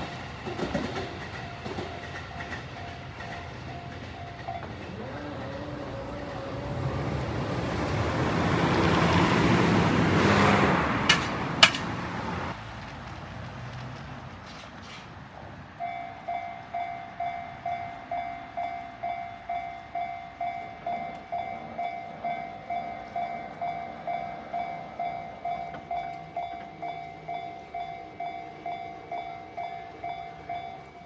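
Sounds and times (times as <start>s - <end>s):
level crossing warning bell dinging: 0.0s - 7.7s, 15.8s - 31.0s.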